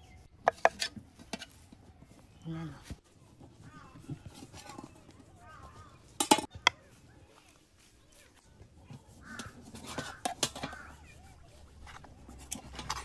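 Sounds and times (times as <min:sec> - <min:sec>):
birds calling: 0:03.6 - 0:06.6, 0:09.0 - 0:12.0.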